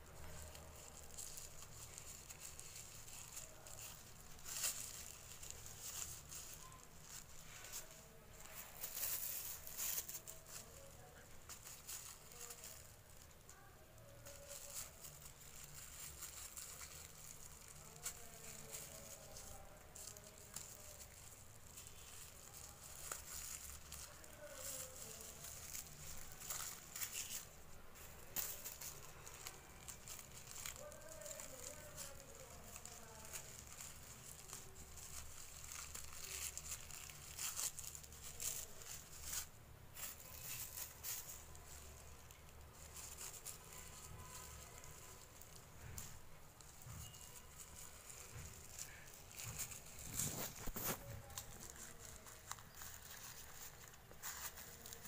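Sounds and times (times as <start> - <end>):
plastic bag crinkling: 0.0 - 55.0.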